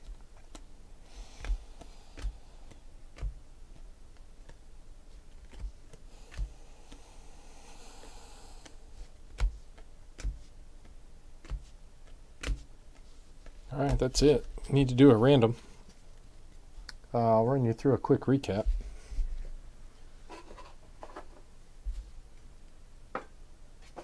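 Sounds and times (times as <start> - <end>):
cards sliding: 0.0 - 14.0
cards clicking off a stack: 1.4 - 3.4, 5.4 - 7.0, 11.4 - 13.0.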